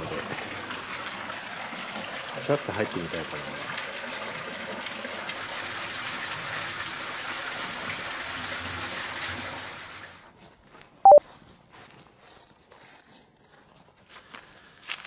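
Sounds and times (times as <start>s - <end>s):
water pouring into a bath: 0.0s - 10.2s
footsteps crunching through dry leaves: 10.3s - 15.0s.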